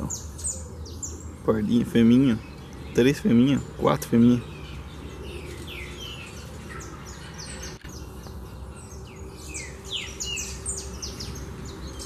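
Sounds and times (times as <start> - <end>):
finches chirping: 0.0 - 12.0.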